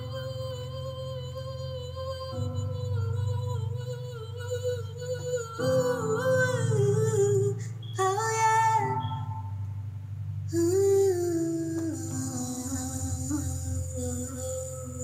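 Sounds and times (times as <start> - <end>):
woman singing long notes: 0.0 - 9.4, 10.5 - 15.0.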